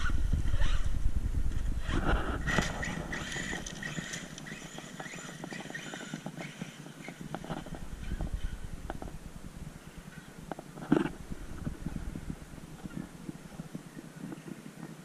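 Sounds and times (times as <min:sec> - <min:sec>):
electric motor whine: 0:00.0 - 0:09.2.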